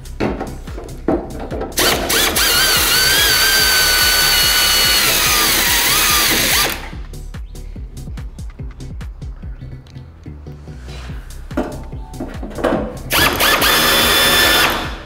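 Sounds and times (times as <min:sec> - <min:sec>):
background music with beat: 0:00.0 - 0:15.0
air drill whining: 0:01.8 - 0:07.0, 0:13.1 - 0:15.0.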